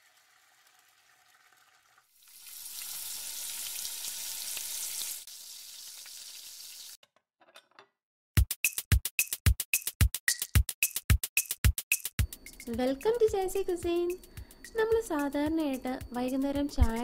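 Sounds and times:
food sizzling in hot oil: 0.0s - 7.0s.

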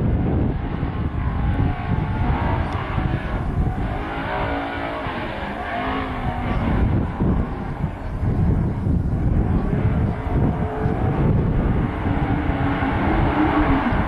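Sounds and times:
distant race car engine: 0.0s - 14.0s
wind buffeting microphone: 0.0s - 14.0s.

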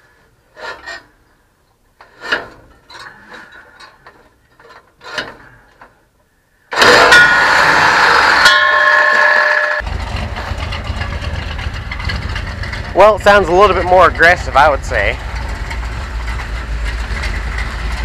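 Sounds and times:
truck engine starting loud: 6.7s - 18.0s.

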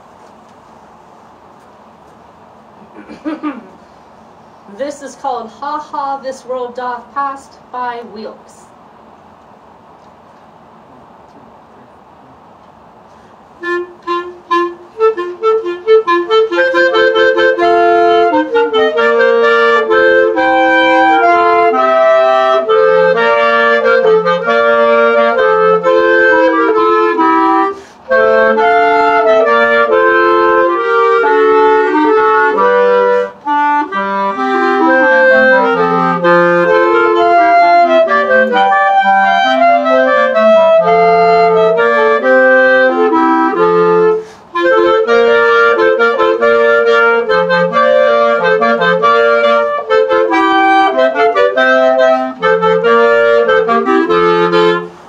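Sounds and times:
clarinet trio playing: 13.6s - 55.0s.

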